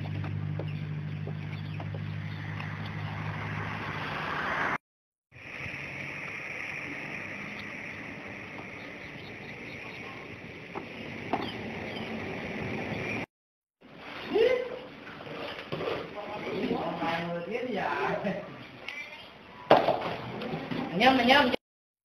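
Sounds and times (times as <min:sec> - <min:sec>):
motor humming: 0:00.0 - 0:04.2
high hiss: 0:05.4 - 0:09.4.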